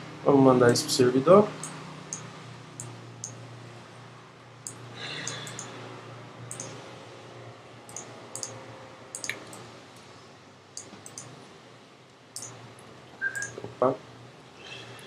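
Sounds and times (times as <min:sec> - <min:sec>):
low steady hum: 0:00.0 - 0:15.0
computer mouse clicks: 0:04.7 - 0:05.7, 0:06.5 - 0:06.7, 0:07.9 - 0:08.5, 0:09.2 - 0:09.6.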